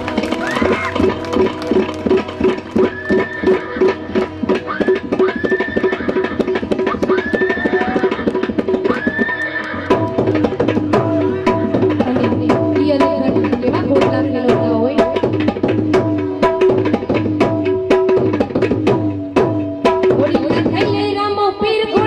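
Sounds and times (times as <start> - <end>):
harmonium and keyboard melody: 0.0 - 4.6
tabla rhythm: 0.0 - 22.0.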